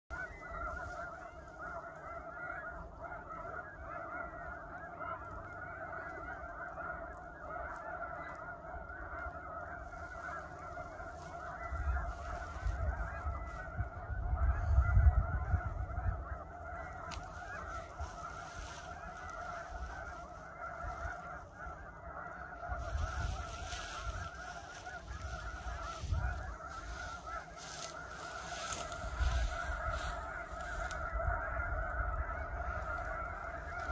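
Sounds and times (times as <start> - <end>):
geese honking: 0.1 - 33.9.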